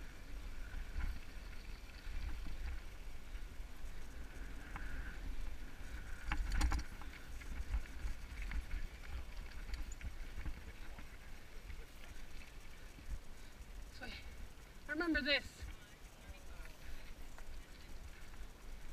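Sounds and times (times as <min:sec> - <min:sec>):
bike tyres rumbling on gravel: 0:00.0 - 0:14.9
sharp clicks and rattles: 0:04.4 - 0:18.6.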